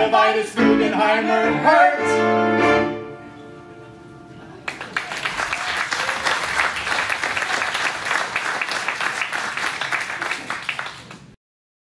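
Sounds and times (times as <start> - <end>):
audience applauding: 4.5 - 11.4.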